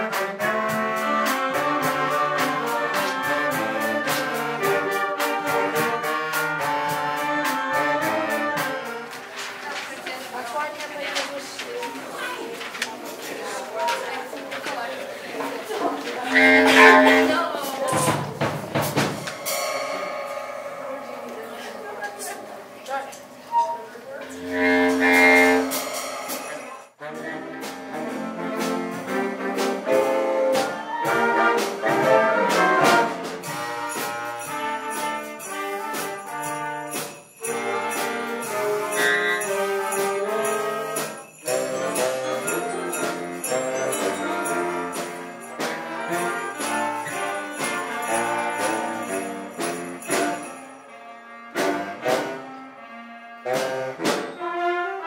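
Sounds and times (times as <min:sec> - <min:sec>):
wind band playing: 0:00.0 - 0:55.0
sleigh bells shaking: 0:06.6 - 0:14.8, 0:19.1 - 0:23.3, 0:25.0 - 0:27.0, 0:33.4 - 0:51.1.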